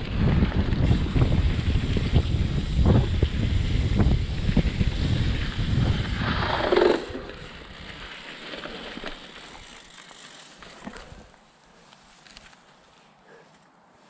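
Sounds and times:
wind rumble on microphone: 0.0s - 8.1s
mountain bike rolling on dirt: 0.0s - 13.0s.

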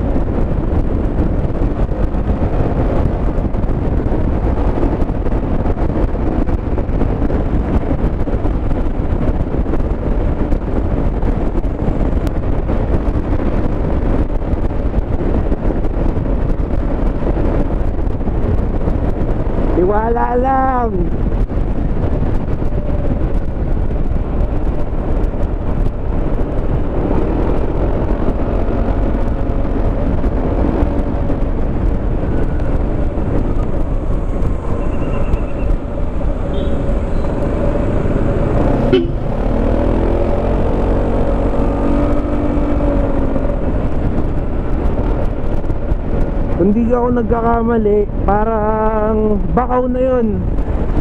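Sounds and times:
scooter engine drone: 0.0s - 47.0s
wind rushing over microphone: 0.0s - 51.0s
low steady tone: 32.3s - 39.3s.

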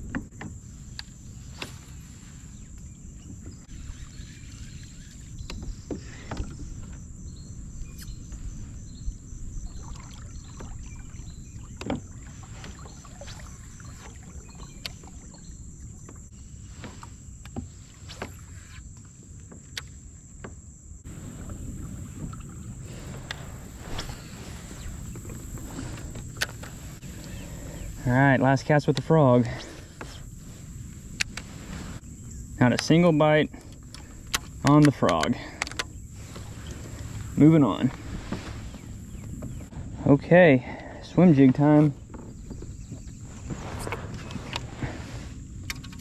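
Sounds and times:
clicks and knocks on kayak hull: 0.0s - 1.8s, 10.5s - 13.4s, 33.6s - 36.8s.

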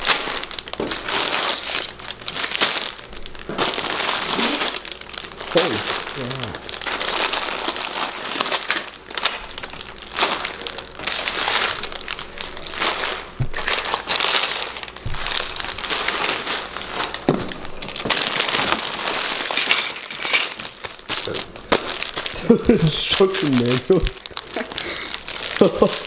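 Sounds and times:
plastic bags crinkling: 0.0s - 26.0s.

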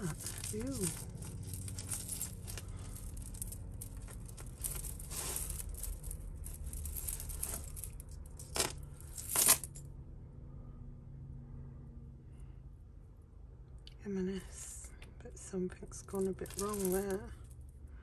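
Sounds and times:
packaging rustling: 0.0s - 7.9s
jewellery clinking: 0.0s - 9.8s, 16.1s - 17.5s.

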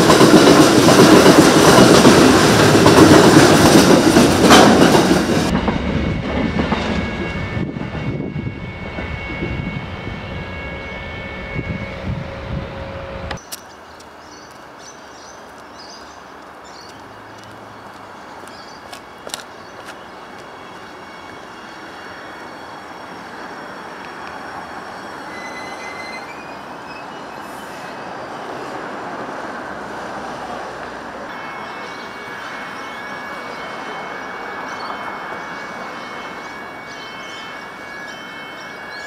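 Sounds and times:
train wheels rumbling on rail: 0.0s - 39.0s
high-pitched squealing tones: 20.5s - 28.4s.

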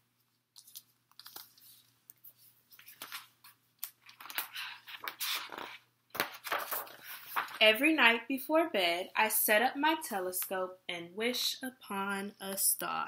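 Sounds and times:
book pages turning: 0.3s - 7.6s.

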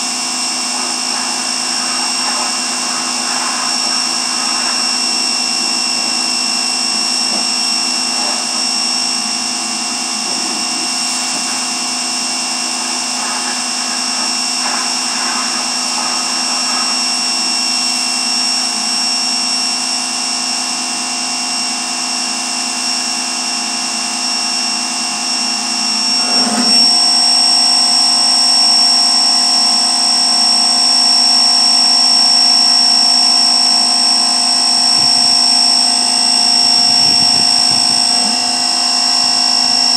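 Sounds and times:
power washer whining: 0.0s - 39.9s.

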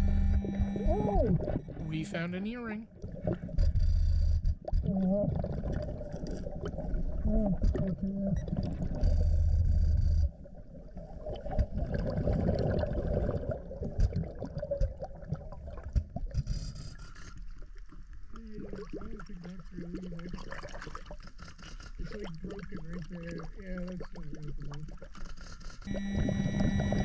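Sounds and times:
low wavering tone: 0.0s - 1.9s, 25.9s - 27.0s
bubbling rumble with hiss: 4.6s - 16.0s, 18.3s - 21.2s, 22.0s - 25.1s.

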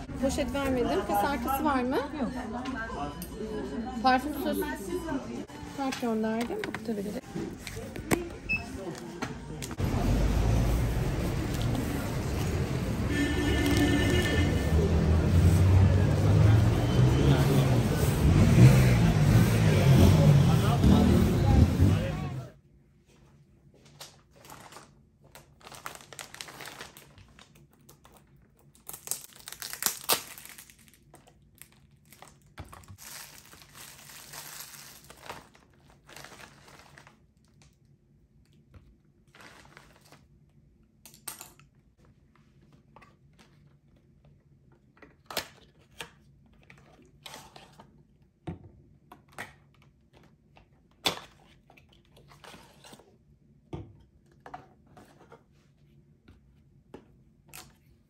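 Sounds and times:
plastic bag rustling: 32.1s - 37.3s, 39.3s - 40.3s.

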